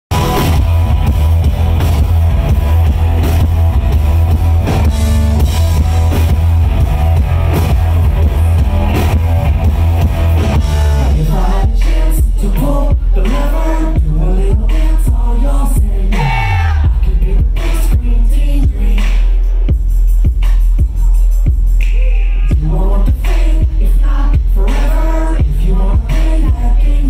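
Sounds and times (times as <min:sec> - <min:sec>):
electric guitar: 0:00.1 - 0:12.0
drum kit: 0:00.1 - 0:27.0
man singing: 0:10.5 - 0:19.8, 0:22.2 - 0:27.0.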